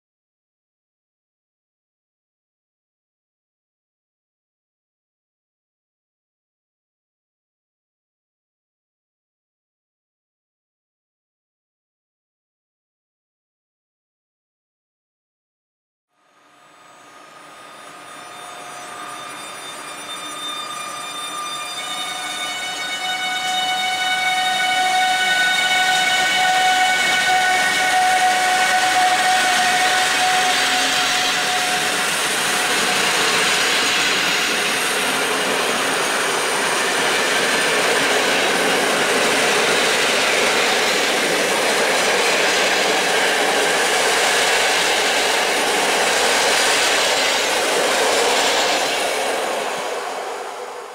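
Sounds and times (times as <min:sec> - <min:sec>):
high locomotive whine: 0:16.1 - 0:50.9
train wheels rumbling on rail: 0:16.8 - 0:50.9.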